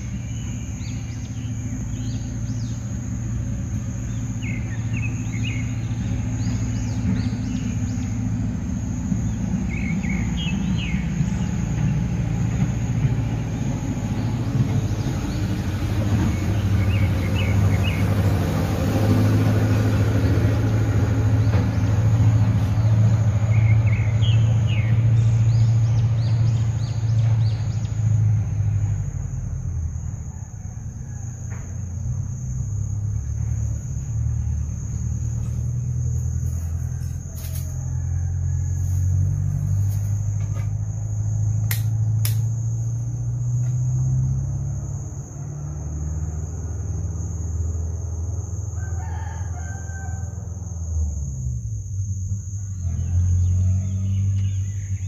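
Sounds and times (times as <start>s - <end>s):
continuous high-pitched whine: 0.0s - 55.0s
rooster crowing: 30.0s - 32.4s, 34.0s - 40.5s, 48.4s - 51.1s, 52.4s - 55.0s
steady low rumble: 31.4s - 45.4s.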